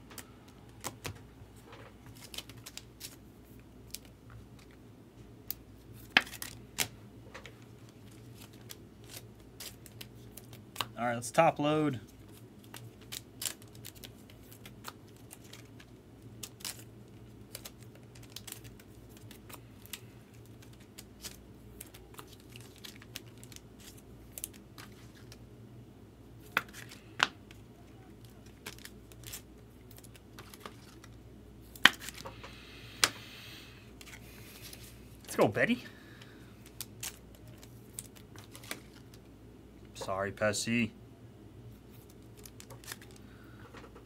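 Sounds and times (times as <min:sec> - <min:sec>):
low steady hum: 0:00.0 - 0:44.0
light plastic crinkling: 0:12.0 - 0:25.4, 0:26.4 - 0:32.5, 0:36.2 - 0:39.3, 0:41.7 - 0:43.9.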